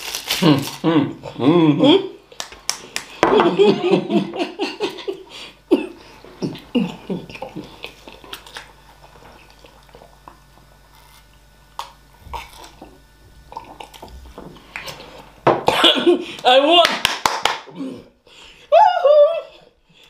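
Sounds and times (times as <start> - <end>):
people chewing: 5.1 - 15.4.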